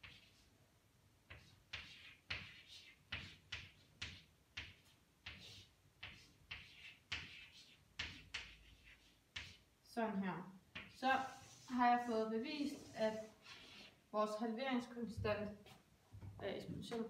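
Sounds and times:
chalk scratching on chalkboard: 0.0s - 0.5s, 1.3s - 9.7s, 10.7s - 14.0s.

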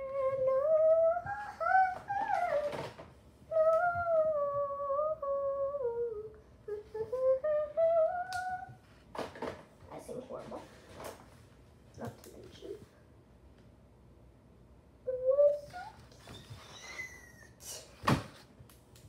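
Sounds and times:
girl humming a tune: 0.0s - 2.9s, 3.5s - 8.9s, 15.0s - 17.9s.

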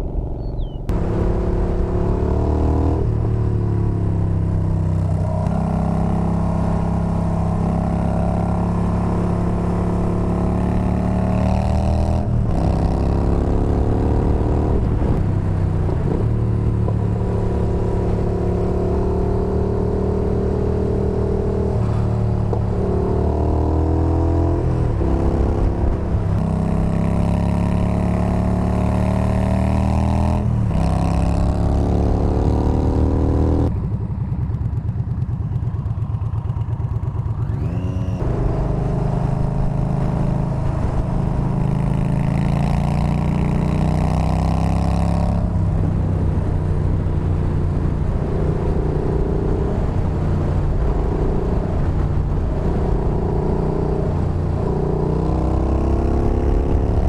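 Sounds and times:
wind rush: 47.3s - 57.0s.

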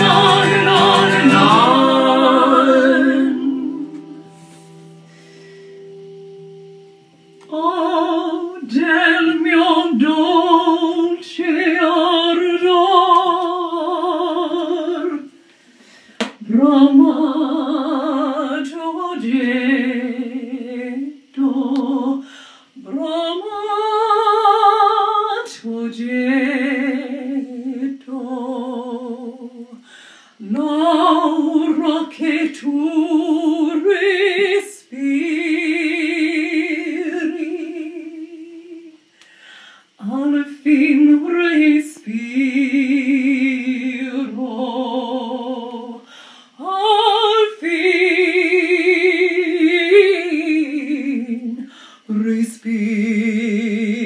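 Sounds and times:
woman singing without words: 0.0s - 4.4s, 7.4s - 15.6s, 16.2s - 54.0s.

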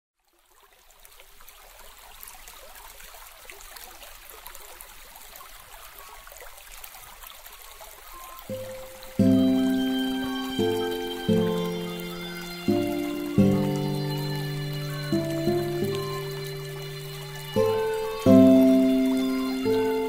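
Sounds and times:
stream trickling: 0.2s - 20.0s
sustained musical note: 8.5s - 20.0s.

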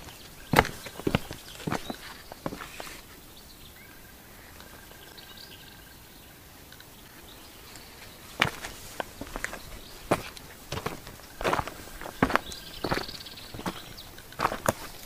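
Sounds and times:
footsteps: 0.0s - 3.2s, 8.0s - 15.0s
outdoor background noise: 0.0s - 15.0s.

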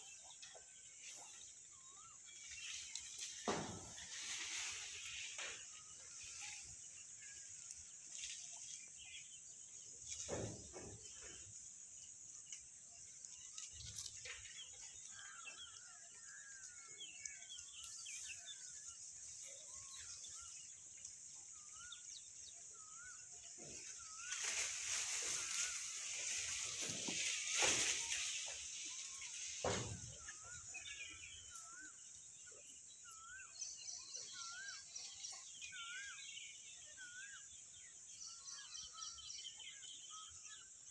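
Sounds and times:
small bird chirps: 0.0s - 3.5s, 12.4s - 40.9s.

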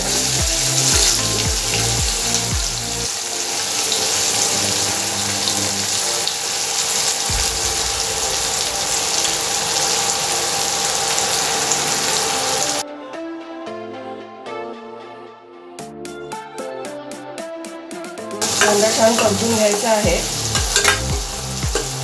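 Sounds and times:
background music with bass line: 0.0s - 3.1s, 7.2s - 9.9s, 12.7s - 22.0s
onions sizzling in hot oil: 0.0s - 12.8s, 18.4s - 22.0s.

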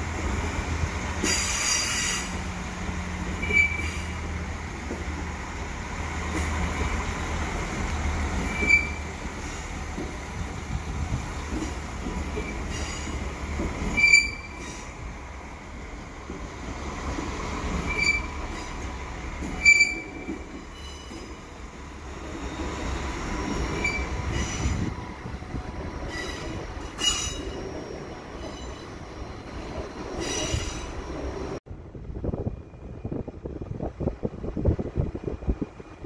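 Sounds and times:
train rumbling past: 0.0s - 36.0s
train wheels squealing: 1.2s - 2.4s, 3.3s - 4.3s, 8.4s - 9.8s, 12.4s - 15.0s, 17.7s - 21.4s, 22.3s - 31.6s.

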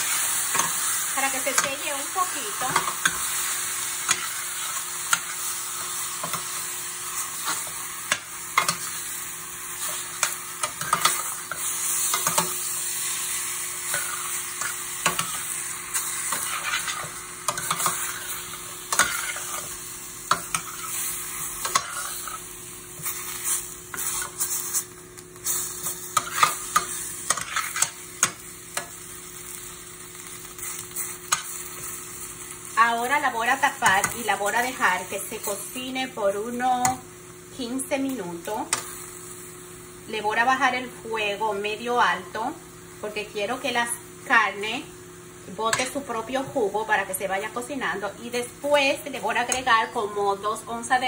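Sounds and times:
metal spoon scraping a pan: 0.0s - 9.1s, 9.8s - 12.7s, 13.8s - 22.4s, 23.0s - 29.0s, 45.7s - 46.0s
meat sizzling in a pan: 0.0s - 51.0s.

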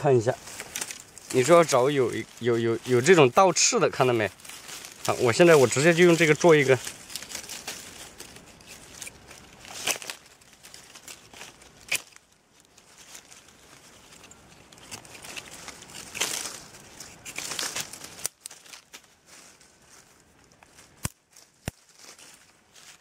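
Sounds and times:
dry leaves rustling: 0.0s - 23.0s
small sticks clicking: 0.6s - 2.3s, 4.8s - 13.4s, 14.0s - 19.0s.

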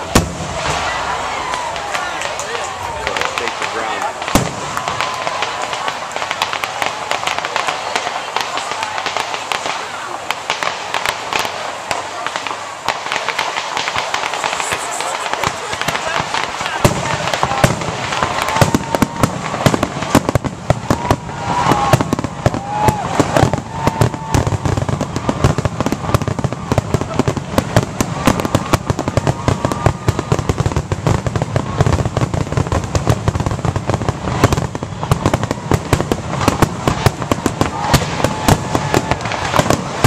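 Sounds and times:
fireworks bursts and crackle: 0.0s - 40.0s
fireworks whistles: 0.0s - 40.0s.

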